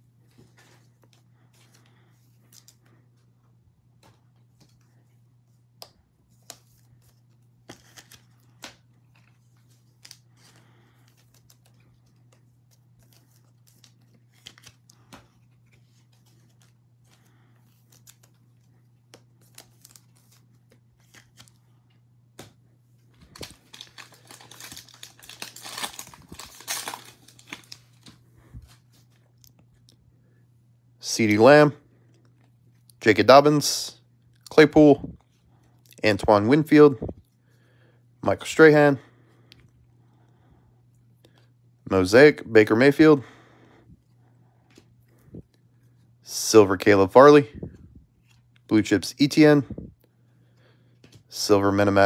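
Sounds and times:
steady low hum: 0.0 - 52.0
foil wrapper tearing and crinkling: 23.3 - 28.1.

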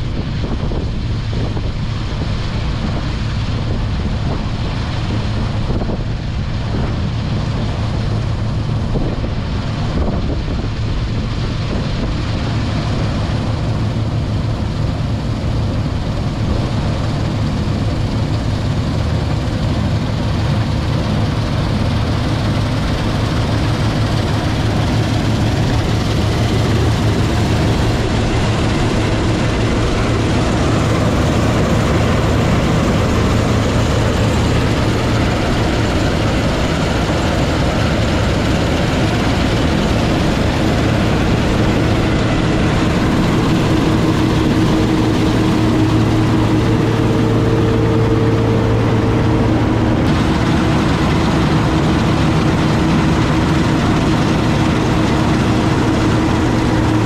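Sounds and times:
diesel engine running under load: 0.0 - 57.0.

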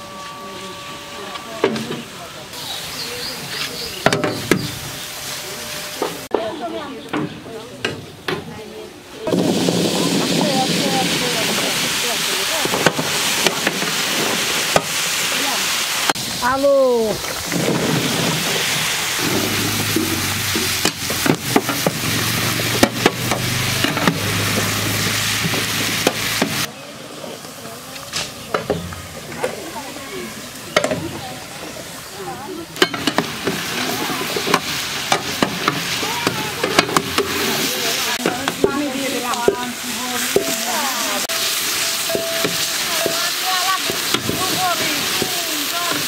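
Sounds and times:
potatoes sizzling in hot oil: 9.4 - 26.7, 28.7 - 46.0.

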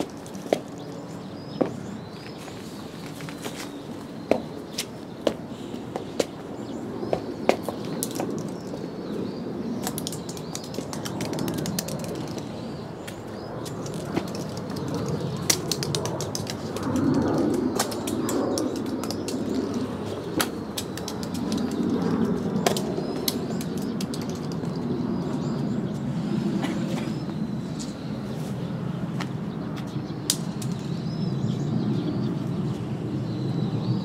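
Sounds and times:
balls clicking on stone tiles: 9.8 - 12.5, 22.7 - 24.8.

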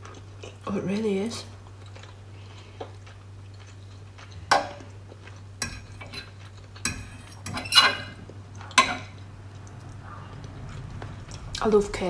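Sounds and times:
fork clinking on baking dish: 5.6 - 9.2.

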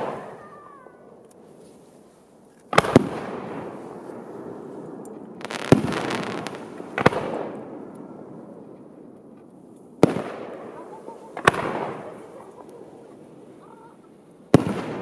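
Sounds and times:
firework shells bursting: 5.4 - 7.6.

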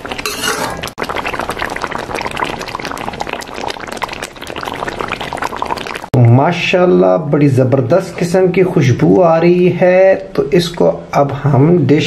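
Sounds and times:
ladle pouring gravy: 0.0 - 6.1
gravy bubbling in a wok: 0.0 - 6.2.

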